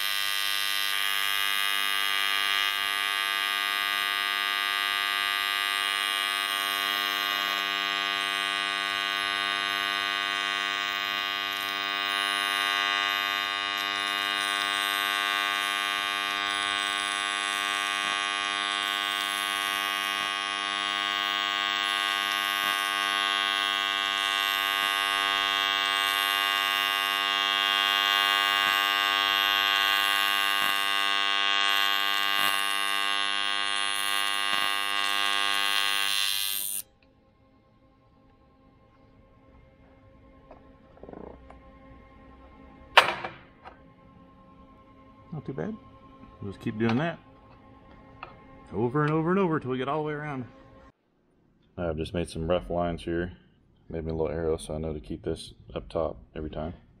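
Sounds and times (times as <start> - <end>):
welding arc buzzing: 0.0 - 37.0.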